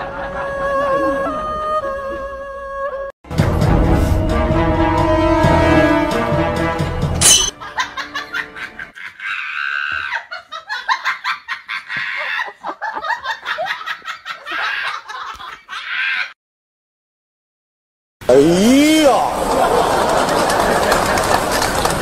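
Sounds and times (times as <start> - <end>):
person laughing hard: 7.6 - 16.3.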